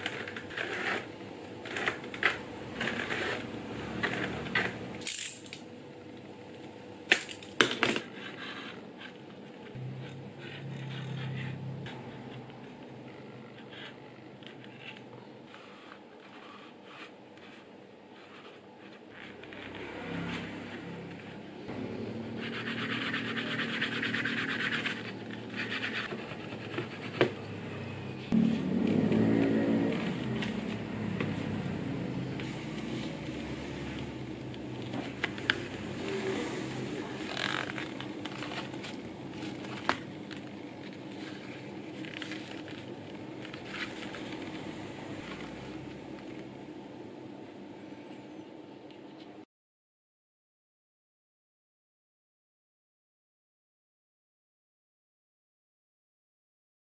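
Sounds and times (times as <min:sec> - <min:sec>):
stick scraping leather edge: 0:00.0 - 0:04.9.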